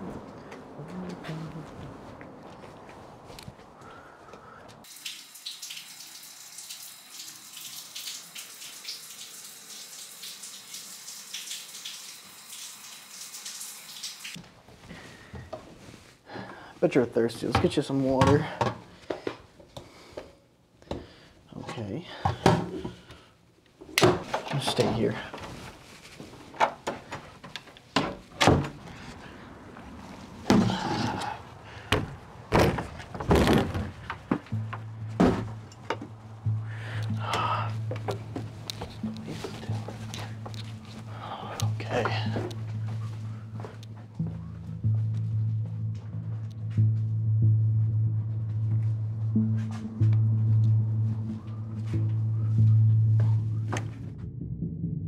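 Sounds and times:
water running: 0:04.8 - 0:14.4, 0:33.1 - 0:43.8
wooden door pulled shut: 0:28.0 - 0:28.8, 0:32.0 - 0:34.0
clunks and rattle: 0:31.9 - 0:36.2.

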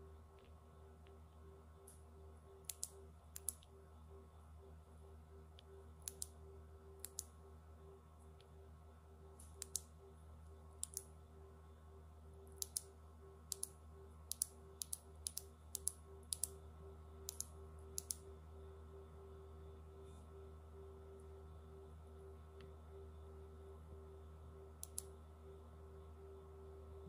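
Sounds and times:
faint steady hum: 0:00.0 - 0:27.0.

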